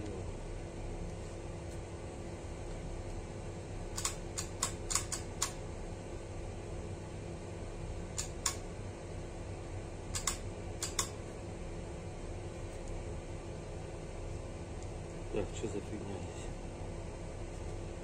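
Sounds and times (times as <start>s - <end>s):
steady low hum: 0.0s - 18.0s
light sharp clicks: 10.2s - 11.2s.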